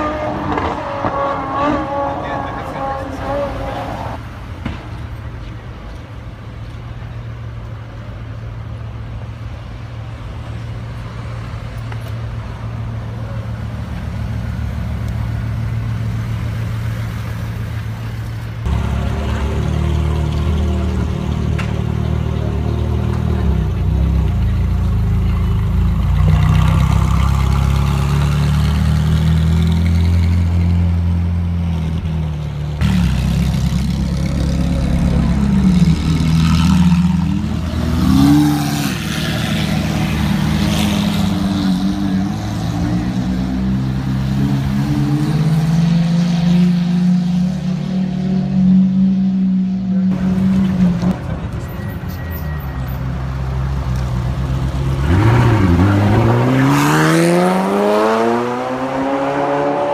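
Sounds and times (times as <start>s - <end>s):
sports car engine revving up close: 0.0s - 4.0s, 54.8s - 59.9s
sports car engine revving: 0.0s - 4.2s
car engines idling: 4.3s - 28.8s, 29.8s - 38.2s.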